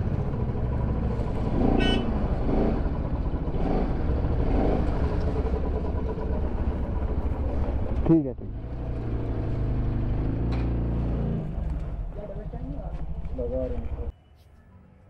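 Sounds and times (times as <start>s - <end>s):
motorcycle engine idling: 0.0s - 9.3s, 11.5s - 14.1s.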